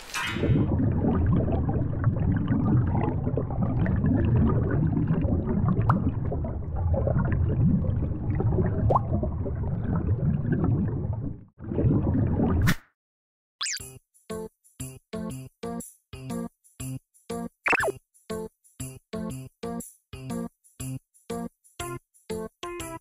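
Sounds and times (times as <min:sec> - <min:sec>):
underwater water noise: 0:00.0 - 0:12.6
water gurgling: 0:00.3 - 0:12.6.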